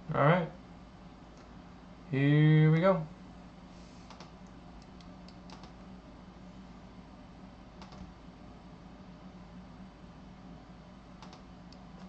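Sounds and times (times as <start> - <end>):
low electrical hum: 0.0 - 12.0
keyboard and mouse clicks: 4.1 - 5.8, 7.8 - 8.1, 11.2 - 12.0.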